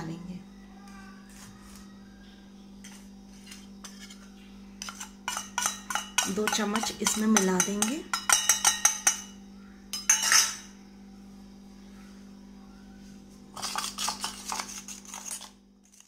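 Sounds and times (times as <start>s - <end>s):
steady low hum: 0.0s - 16.0s
spoon scraping thick paste: 2.8s - 7.2s, 13.6s - 16.0s
spoon clinking metal bowl: 3.8s - 10.7s, 13.6s - 16.0s.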